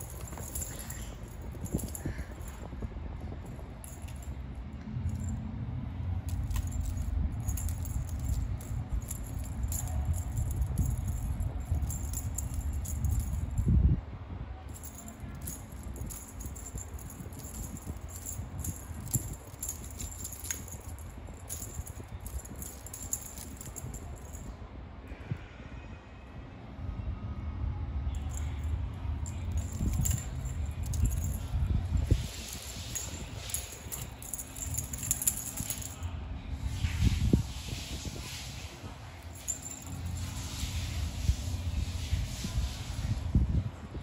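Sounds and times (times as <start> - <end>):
metal chain jangling: 0.0 - 4.4, 6.2 - 13.8, 14.7 - 24.6, 28.2 - 36.1, 39.1 - 41.4
low scuffing rumble: 0.0 - 14.0, 14.7 - 24.5, 28.3 - 43.7.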